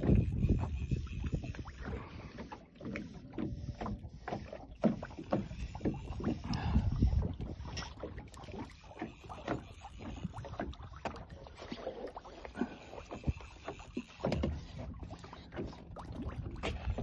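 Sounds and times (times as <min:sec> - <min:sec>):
waves slapping against boat hull: 0:00.0 - 0:17.0
low wind rumble: 0:06.3 - 0:07.8.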